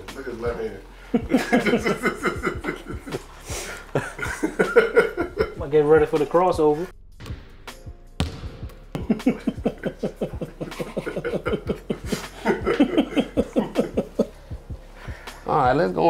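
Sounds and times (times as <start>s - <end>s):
basketball bouncing on court: 8.2s - 9.2s.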